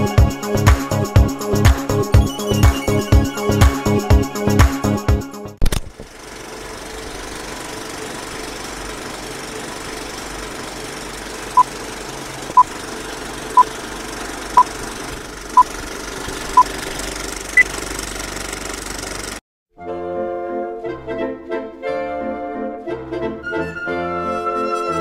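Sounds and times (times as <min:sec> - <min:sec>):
film projector running: 0:06.0 - 0:19.4.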